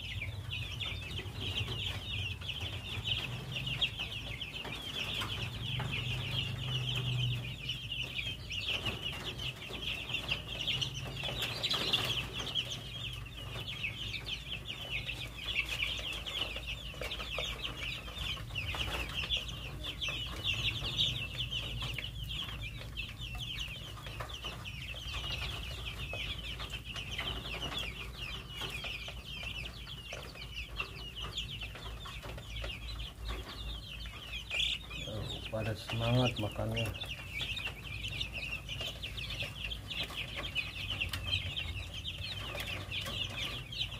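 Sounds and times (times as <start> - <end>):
chicks peeping: 0.0 - 43.9.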